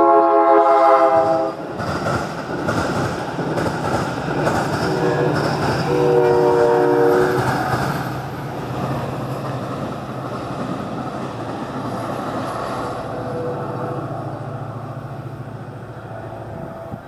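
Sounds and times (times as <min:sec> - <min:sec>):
train horn chord: 0:00.0 - 0:01.6, 0:04.8 - 0:07.4, 0:13.2 - 0:14.1
train rumbling past: 0:00.0 - 0:17.0.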